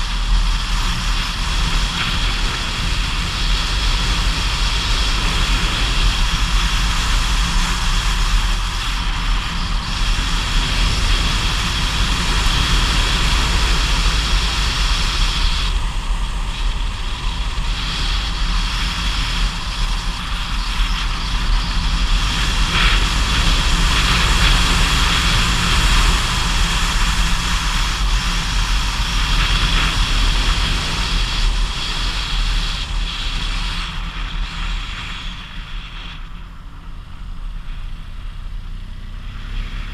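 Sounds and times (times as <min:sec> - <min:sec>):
wind on microphone: 0:00.0 - 0:38.3.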